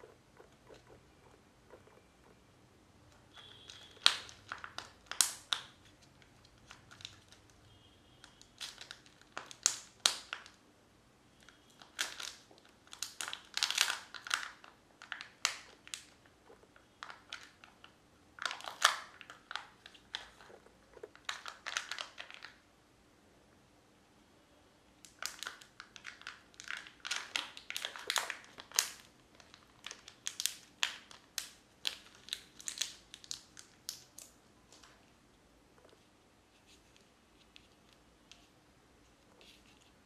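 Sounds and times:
plastic wrapper crinkling and tearing: 0:03.3 - 0:07.6, 0:08.2 - 0:10.6, 0:11.4 - 0:22.6, 0:25.0 - 0:35.1.

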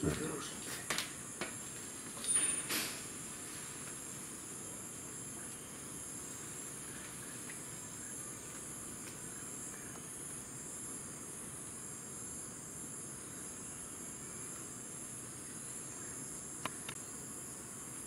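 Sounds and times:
insects chorus: 0:00.0 - 0:18.0.

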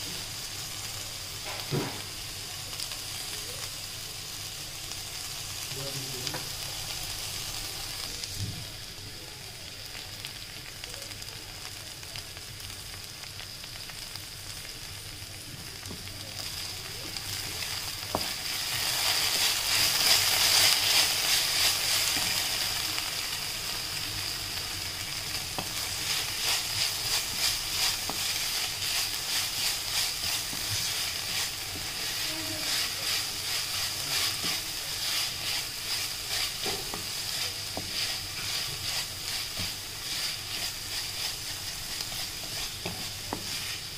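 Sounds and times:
vegetables sizzling in a wok: 0:00.0 - 0:43.9
wooden spatula stirring: 0:17.1 - 0:22.8, 0:25.2 - 0:43.9.

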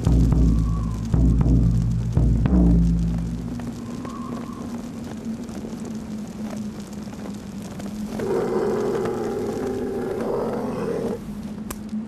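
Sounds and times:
wolf howling: 0:08.1 - 0:11.3.

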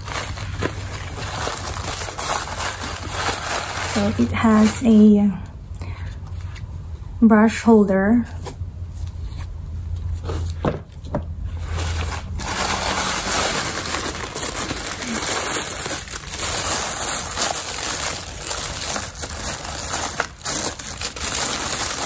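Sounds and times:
tissue paper crinkling: 0:00.0 - 0:05.2, 0:11.5 - 0:22.0.

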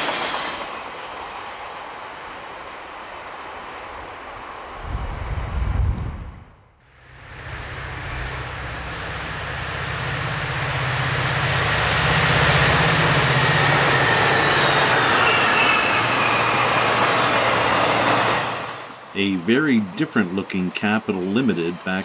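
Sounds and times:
diesel locomotive engine drone: 0:00.0 - 0:22.0
train rumbling past: 0:00.0 - 0:22.0
faint high whine: 0:06.8 - 0:18.2.

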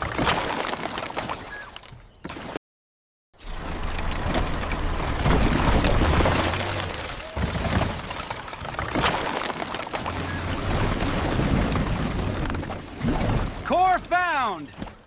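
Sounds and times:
cartoon bulldozer engine hum: 0:03.4 - 0:14.8
junk and debris clattering: 0:03.5 - 0:13.7.

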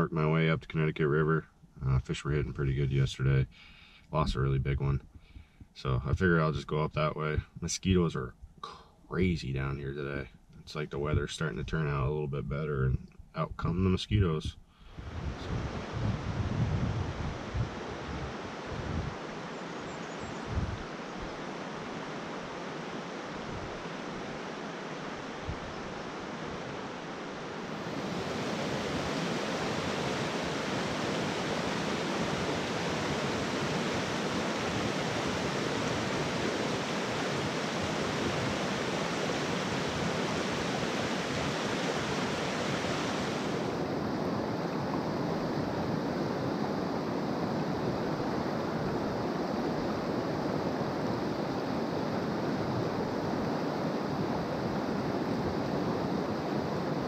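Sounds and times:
river water rushing over rocks: 0:20.8 - 0:46.8.

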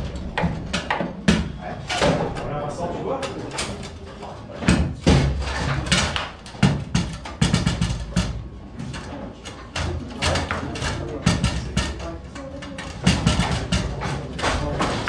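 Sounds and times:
foosball ball clacks: 0:00.0 - 0:02.5, 0:03.1 - 0:15.0.

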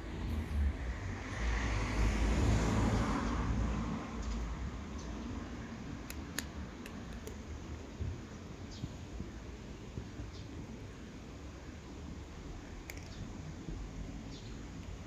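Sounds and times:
road vehicle passing by: 0:00.0 - 0:06.0
sharp clicks: 0:06.0 - 0:07.4, 0:12.8 - 0:13.2.

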